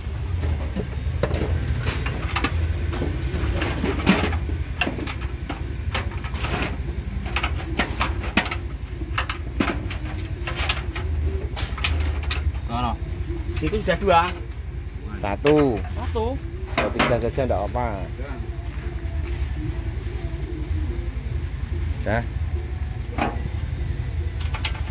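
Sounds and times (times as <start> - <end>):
spanner clicking on metal bolts: 3.6 - 12.6.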